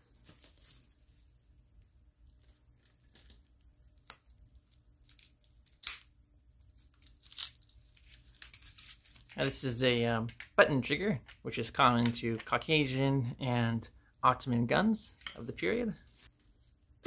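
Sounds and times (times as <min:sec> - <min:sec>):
plastic wrap crinkling and tearing: 0:02.2 - 0:09.5.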